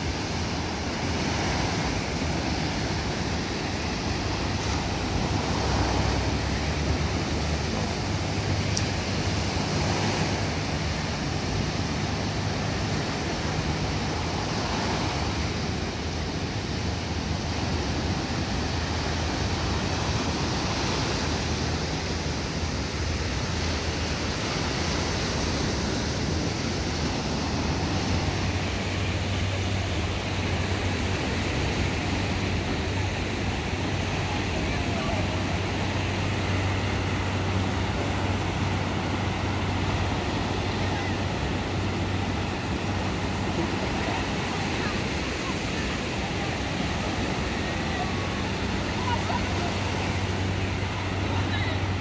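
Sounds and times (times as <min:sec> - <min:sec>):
surf waves washing up beach: 0:00.0 - 0:52.0.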